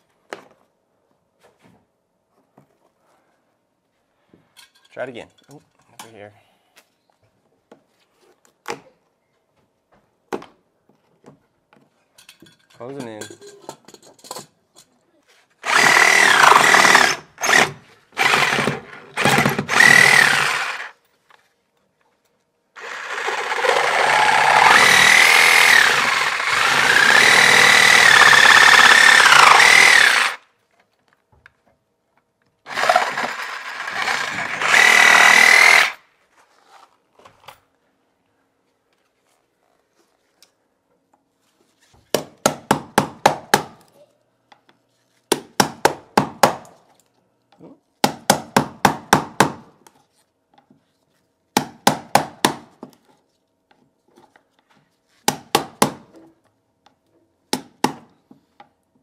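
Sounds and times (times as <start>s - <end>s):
reciprocating saw cutting wood: 15.6s - 20.9s, 22.8s - 30.4s, 32.7s - 36.0s.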